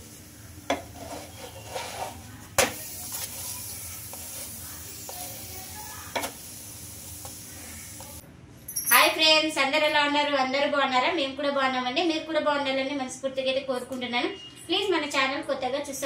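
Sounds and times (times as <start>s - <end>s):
flatbread sizzling in oil: 0.0s - 8.2s
utensil tapping and scraping: 0.7s - 5.4s.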